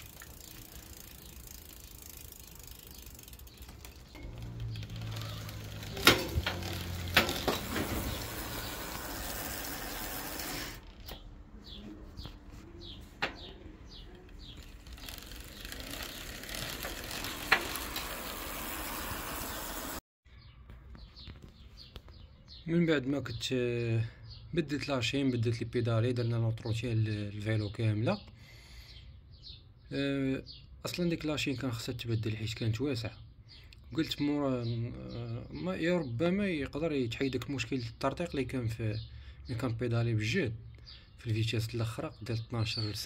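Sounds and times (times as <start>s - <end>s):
gear change clicks: 0.0s - 8.3s
freewheel ratchet ticking: 0.0s - 10.0s.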